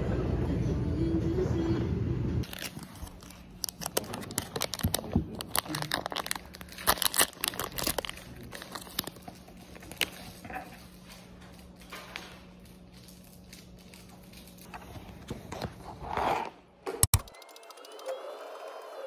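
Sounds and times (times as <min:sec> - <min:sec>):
plastic wrapper crinkling: 0:02.4 - 0:14.7.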